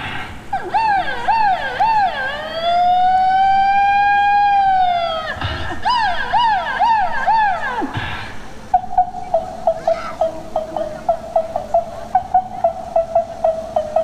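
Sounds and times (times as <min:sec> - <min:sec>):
electronic siren whooping and wailing: 0:00.6 - 0:08.0.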